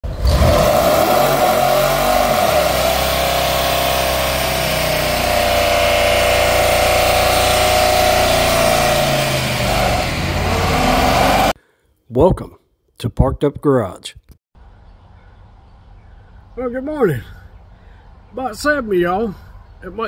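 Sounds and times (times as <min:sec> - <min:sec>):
engine at high revs: 0:00.0 - 0:11.6.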